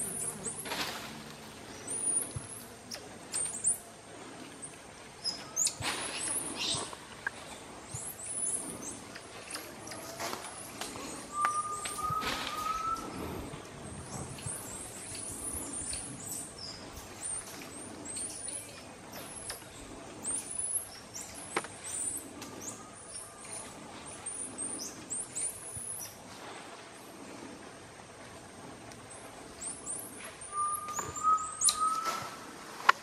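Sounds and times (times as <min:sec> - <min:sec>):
monkeys chirping: 0:01.7 - 0:03.9, 0:05.2 - 0:07.0, 0:07.9 - 0:13.3
rising whistled note: 0:11.3 - 0:13.2, 0:30.5 - 0:32.4.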